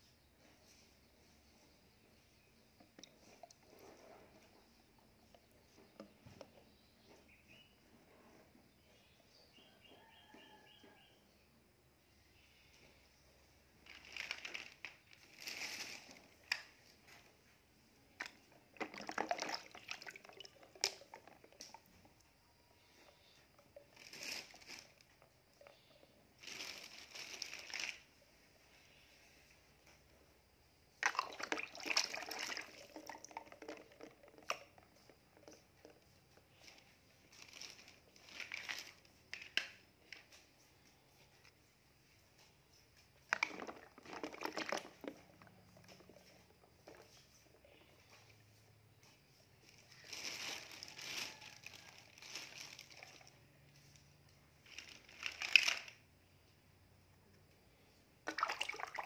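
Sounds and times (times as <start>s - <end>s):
water splashing in a plastic tub: 13.8s - 28.1s, 30.9s - 39.4s, 43.1s - 48.5s, 57.9s - 59.0s
floating toys knocking: 43.3s - 47.1s.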